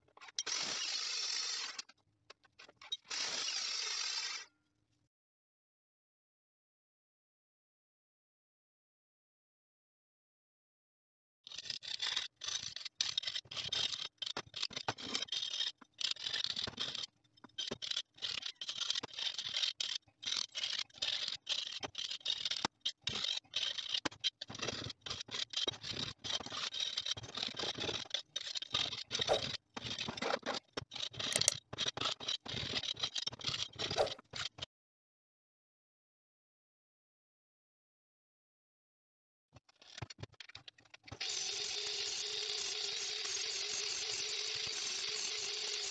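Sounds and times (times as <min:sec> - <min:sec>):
hand tool scraping metal tube: 0:29.2 - 0:29.6, 0:31.3 - 0:31.6, 0:33.9 - 0:34.2.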